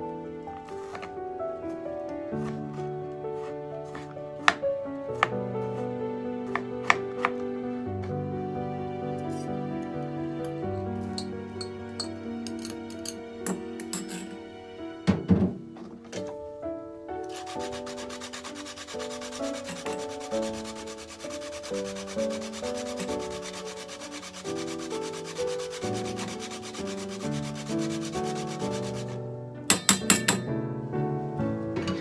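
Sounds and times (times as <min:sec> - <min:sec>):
soft plucked background music: 0:00.0 - 0:32.0
food rasping on plastic grater: 0:17.3 - 0:29.2.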